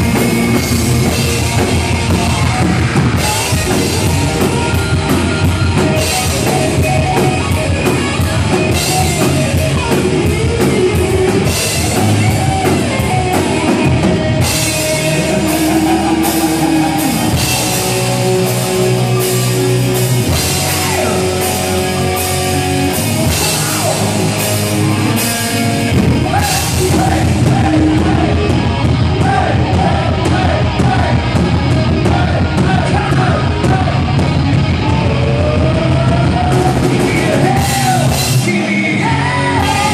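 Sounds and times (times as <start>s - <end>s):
bass guitar: 0.0s - 39.9s
drum kit: 0.0s - 39.9s
electric guitars: 0.0s - 39.9s
man singing into a microphone: 26.2s - 28.5s, 34.9s - 39.9s.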